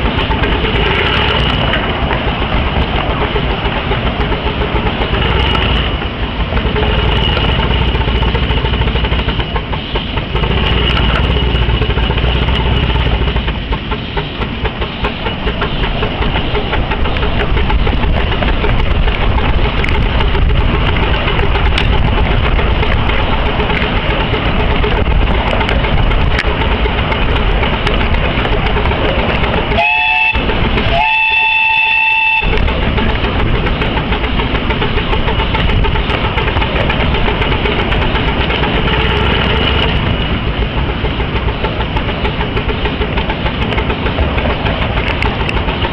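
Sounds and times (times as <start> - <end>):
miniature steam locomotive running: 0.0 - 45.9
steam whistle blasts: 29.7 - 32.6.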